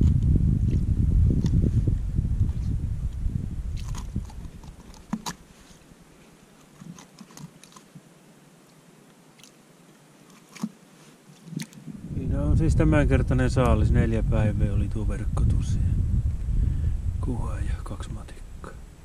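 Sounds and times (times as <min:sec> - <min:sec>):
wind rumbling on microphone: 0:00.0 - 0:05.6, 0:11.5 - 0:19.0
net clicks and crackles: 0:03.8 - 0:05.4, 0:06.6 - 0:08.0.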